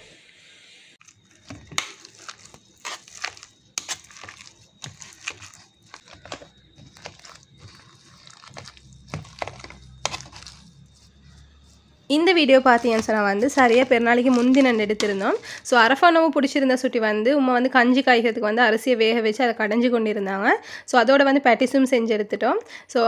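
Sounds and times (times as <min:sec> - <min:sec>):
metal spoon scraping steel pot: 0:01.4 - 0:15.8.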